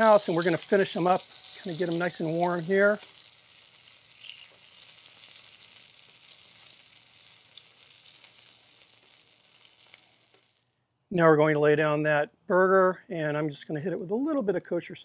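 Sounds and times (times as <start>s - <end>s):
metal tongs turning food: 0.0s - 10.6s
onions sizzling in fat: 0.0s - 10.7s
small crackles: 0.0s - 10.8s.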